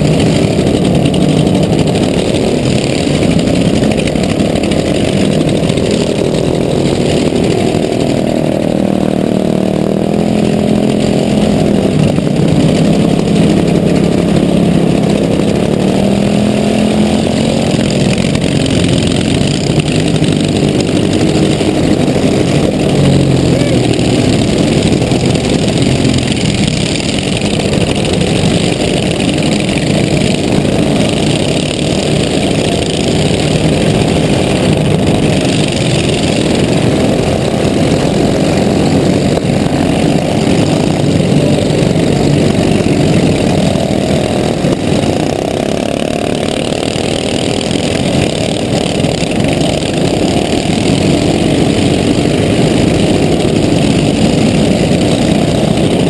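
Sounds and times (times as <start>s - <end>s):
other mower engines: 0.0s - 56.0s
riding lawn mower engine: 0.0s - 56.0s.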